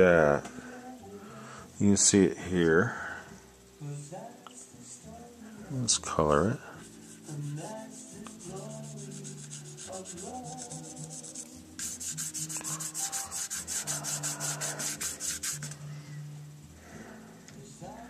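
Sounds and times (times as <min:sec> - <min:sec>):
rhythmic rubbing strokes: 0:06.8 - 0:15.9.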